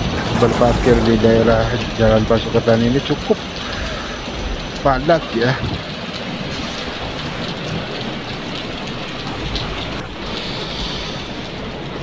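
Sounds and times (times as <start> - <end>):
rain pouring on street: 0.0 - 12.0.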